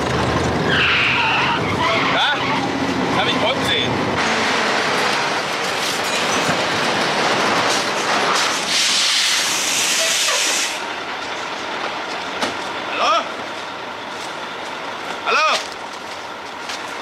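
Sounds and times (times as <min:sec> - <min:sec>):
truck braking rumble and rattle: 0:00.0 - 0:17.0
air brakes hissing: 0:08.3 - 0:10.9.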